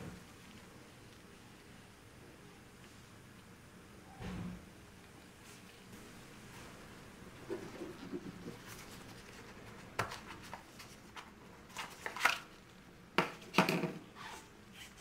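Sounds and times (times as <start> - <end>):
gloved fingers rubbing: 7.4 - 10.6.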